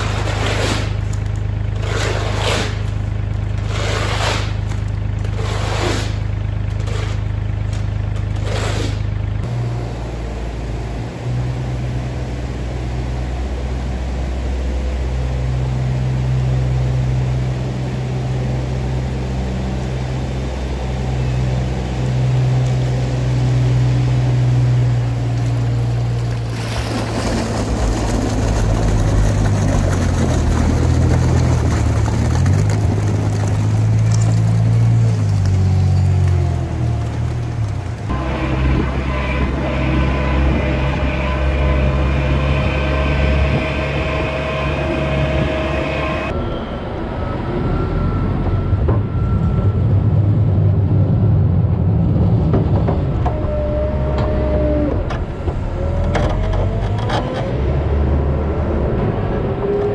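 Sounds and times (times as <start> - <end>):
shovel scraping wet sand: 0.0 - 3.0, 3.6 - 4.7, 5.3 - 7.3, 8.4 - 9.1
diesel engine running: 0.0 - 59.9.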